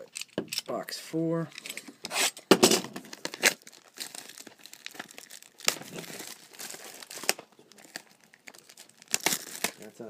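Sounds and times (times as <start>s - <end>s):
plastic wrapping crinkling and tearing: 2.6s - 10.0s.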